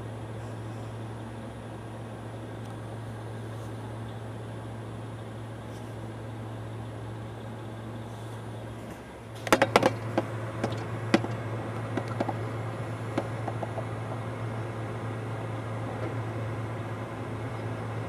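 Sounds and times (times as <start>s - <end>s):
steady low hum: 0.0s - 18.0s
recyclables clattering into truck hopper: 9.4s - 12.4s.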